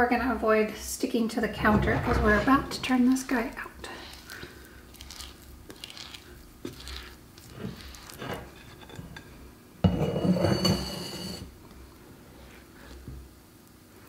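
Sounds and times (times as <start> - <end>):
hands scraping dough from bowl: 1.6 - 9.4
bowl clattering on stone counter: 8.6 - 11.5.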